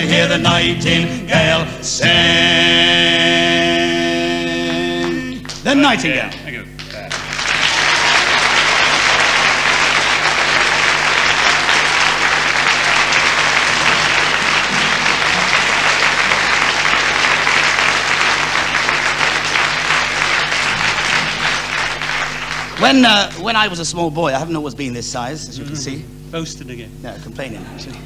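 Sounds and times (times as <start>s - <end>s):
audience applauding: 4.7s - 23.5s.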